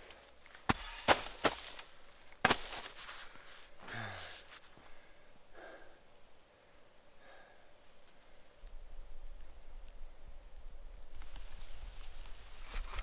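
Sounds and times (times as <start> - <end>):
faint breaths: 3.0 - 8.6
person sighing: 3.8 - 4.5.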